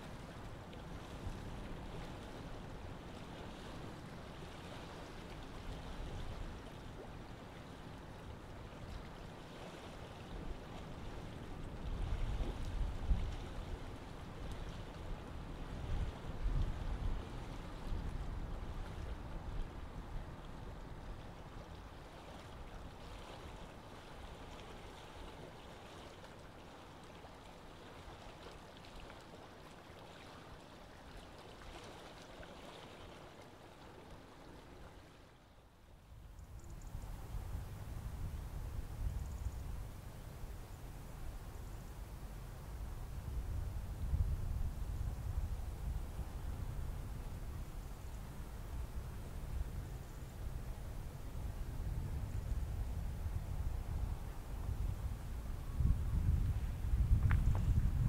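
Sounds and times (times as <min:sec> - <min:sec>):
wind rumbling on microphone: 0:10.4 - 0:21.8, 0:36.1 - 0:58.0.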